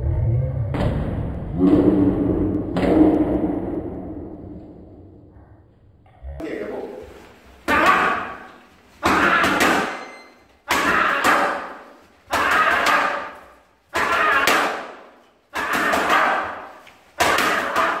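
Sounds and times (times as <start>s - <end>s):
boxing gloves hitting mitts: 7.7s - 18.0s.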